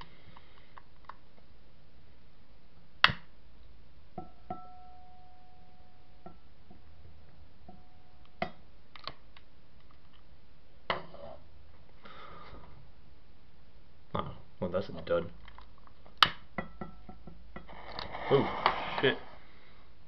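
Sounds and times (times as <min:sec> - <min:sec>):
brief scratchy rush: 0:17.8 - 0:19.4.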